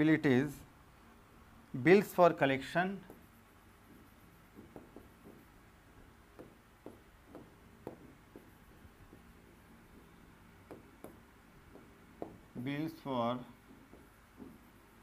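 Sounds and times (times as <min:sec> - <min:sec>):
pen tapping on whiteboard screen: 0:03.0 - 0:05.6, 0:06.3 - 0:12.6, 0:13.6 - 0:15.0.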